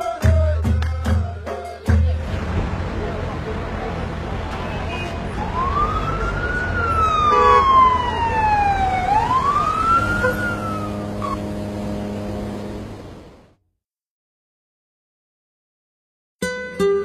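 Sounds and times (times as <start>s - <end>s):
low traffic rumble: 0.3s - 13.6s
siren wailing: 5.4s - 11.4s.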